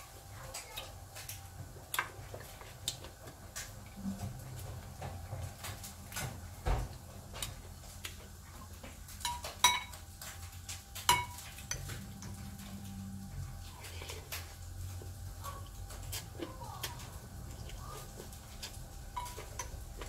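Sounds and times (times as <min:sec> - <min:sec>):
cutlery clinking on glass bowl: 0:09.2 - 0:10.0, 0:11.0 - 0:11.9, 0:19.2 - 0:19.8.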